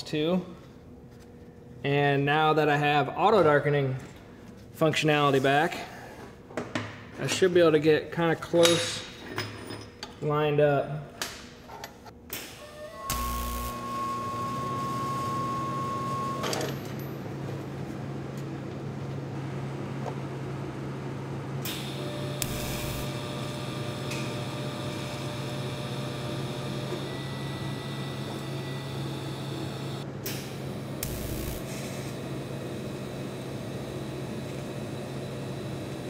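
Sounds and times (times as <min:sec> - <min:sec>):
welding arc humming: 0:12.3 - 0:16.3, 0:21.6 - 0:36.0
thin high whine: 0:12.6 - 0:16.7.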